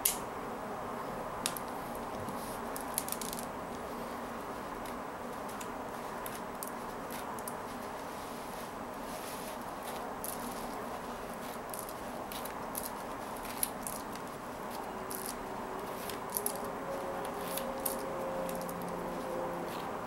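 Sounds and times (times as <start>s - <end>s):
steady background hiss: 0.0s - 20.0s
plastic beads clicking: 15.1s - 15.4s, 16.0s - 16.7s.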